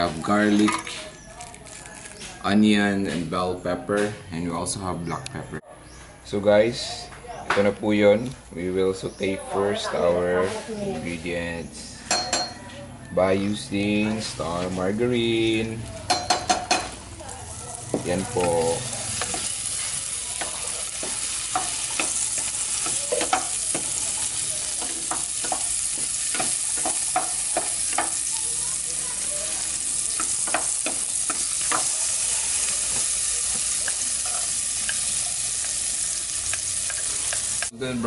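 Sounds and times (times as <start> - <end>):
garlic sizzling in a saucepan: 13.5 - 38.0
spatula knocking against pan: 24.8 - 28.2.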